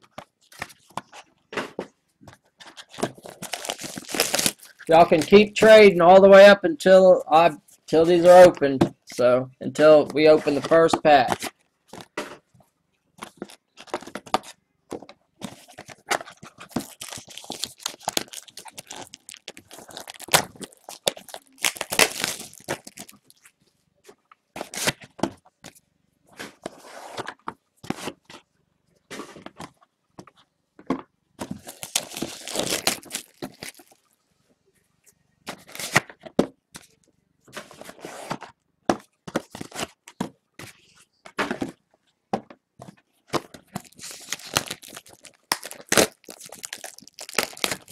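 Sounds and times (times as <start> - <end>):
plastic wrapping crinkling and tearing: 2.6 - 5.6, 15.6 - 23.6, 24.6 - 25.0, 31.5 - 34.2, 35.5 - 36.1, 43.6 - 47.9.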